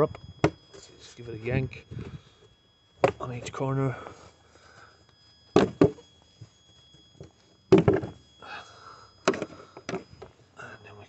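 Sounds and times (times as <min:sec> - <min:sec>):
plastic engine cover clunking: 0:07.7 - 0:08.2.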